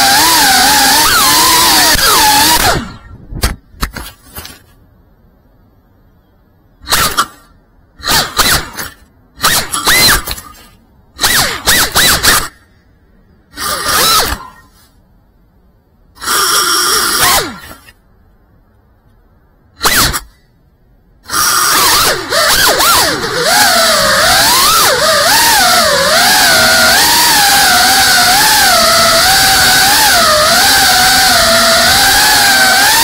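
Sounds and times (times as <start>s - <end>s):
drone motor whine: 0.0s - 3.2s, 21.2s - 33.0s.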